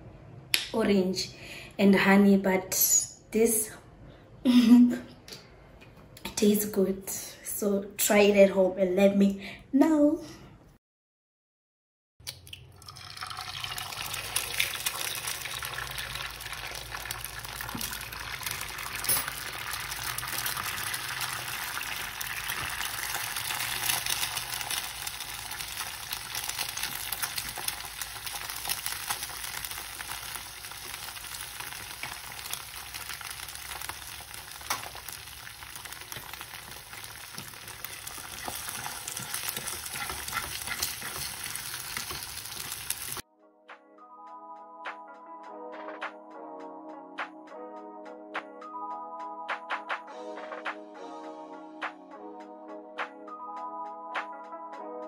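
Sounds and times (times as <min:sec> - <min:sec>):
food sizzling in a pan: 0:13.0 - 0:43.2.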